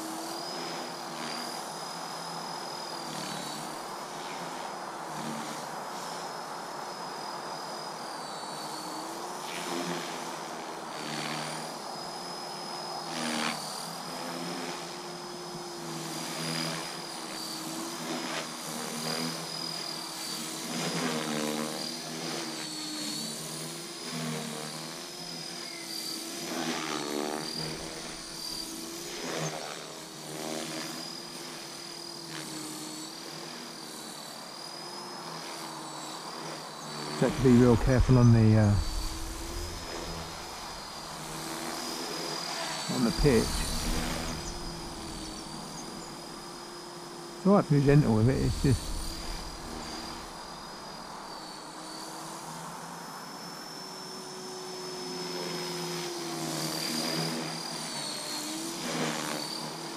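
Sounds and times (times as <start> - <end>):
rc helicopter motor whine: 0.0 - 59.9
rotor noise: 37.2 - 42.0, 42.9 - 46.7, 47.5 - 50.9.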